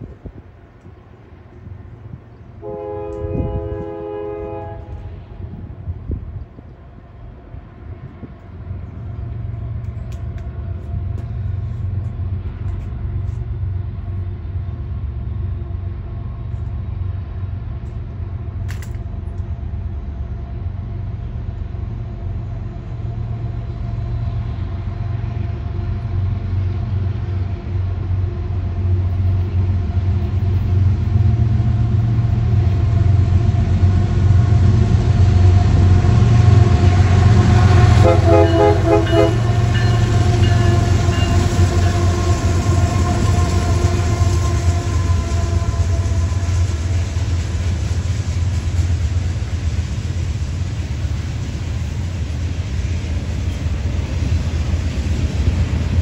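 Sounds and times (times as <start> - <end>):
diesel locomotives rumbling: 0.0 - 56.0
locomotive horn: 2.6 - 5.6, 36.2 - 47.3.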